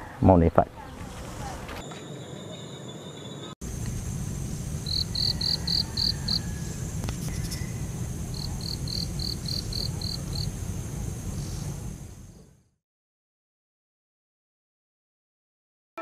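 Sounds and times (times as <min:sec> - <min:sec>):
insect chirping: 0:01.3 - 0:12.5.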